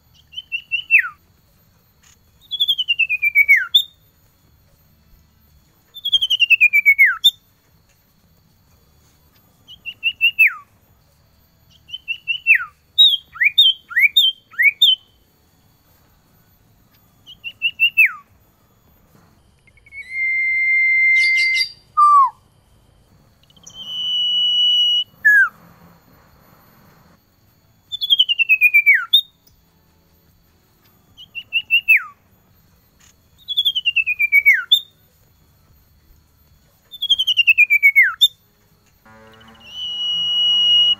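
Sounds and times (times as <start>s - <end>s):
long whistled bird notes: 0.1s - 1.2s, 2.4s - 4.1s, 5.9s - 7.4s, 9.6s - 10.8s, 11.7s - 15.2s, 17.2s - 18.4s, 19.5s - 22.5s, 23.2s - 27.2s, 27.8s - 29.4s, 31.1s - 32.2s, 33.3s - 35.0s, 36.9s - 38.4s, 39.0s - 40.9s
bird whistling song: 0.1s - 1.3s, 2.3s - 4.1s, 5.9s - 7.5s, 9.6s - 10.8s, 11.7s - 15.2s, 17.2s - 18.3s, 19.6s - 22.4s, 23.4s - 25.6s, 27.9s - 29.4s, 31.1s - 32.2s, 33.4s - 35.0s, 36.9s - 38.4s, 39.4s - 40.9s.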